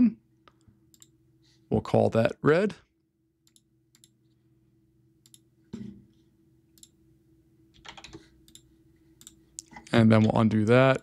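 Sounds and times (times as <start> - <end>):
computer mouse clicks: 7.8 - 9.7.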